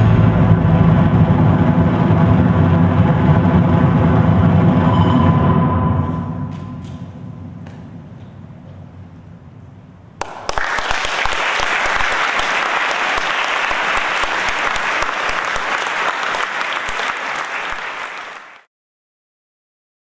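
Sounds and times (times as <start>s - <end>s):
low hum: 0.0s - 10.2s
audience applauding: 10.2s - 18.7s.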